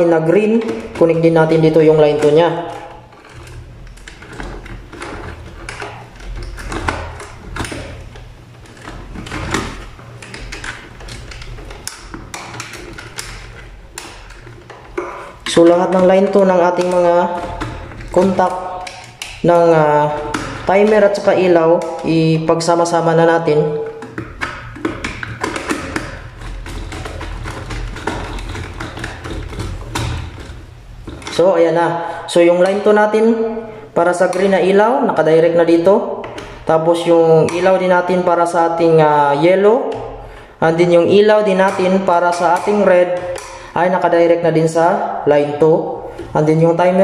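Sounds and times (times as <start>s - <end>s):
hands handling electrical wires: 0.0s - 22.1s
steady low hum: 0.0s - 47.0s
screwdriver clicking on terminals: 0.5s - 22.2s, 23.8s - 31.4s.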